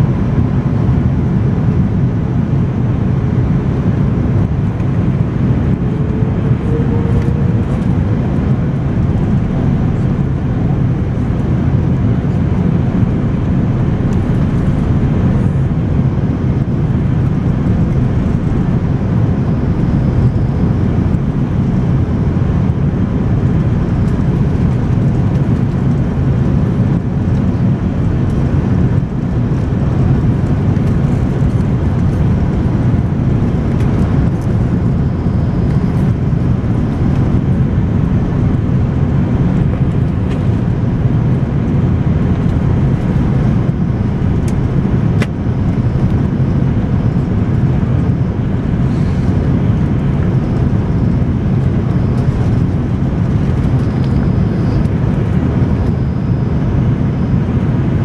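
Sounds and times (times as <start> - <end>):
jet engines in aircraft cabin: 0.0 - 58.0
rushing air: 3.5 - 11.9, 46.6 - 55.5.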